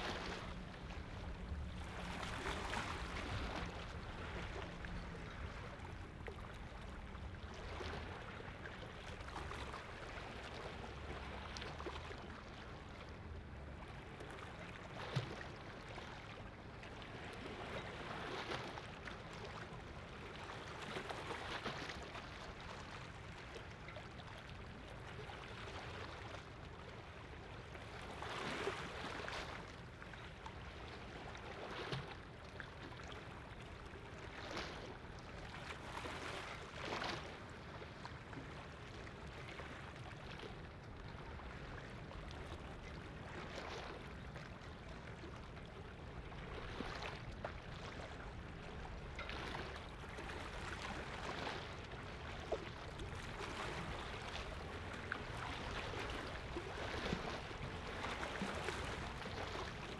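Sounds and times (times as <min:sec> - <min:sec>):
boat engine hum: 0:00.0 - 0:19.0
small waves lapping: 0:00.0 - 0:59.9.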